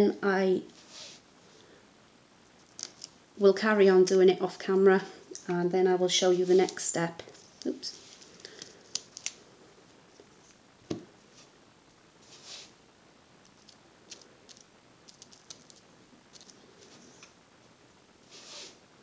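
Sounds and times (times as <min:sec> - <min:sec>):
soft rustle: 0:00.6 - 0:01.8, 0:06.1 - 0:10.6, 0:11.2 - 0:12.8, 0:15.2 - 0:18.9.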